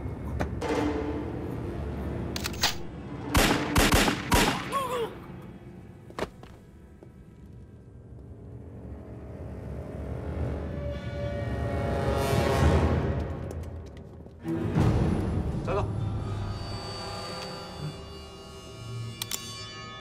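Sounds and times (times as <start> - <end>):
gunshots: 3.3 - 4.8.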